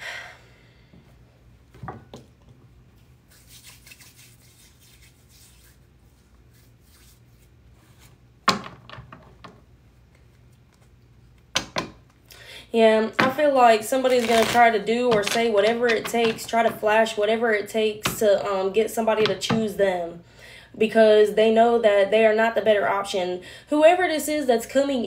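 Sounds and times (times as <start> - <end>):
cards sliding and rubbing: 3.3 - 8.2, 14.1 - 14.7.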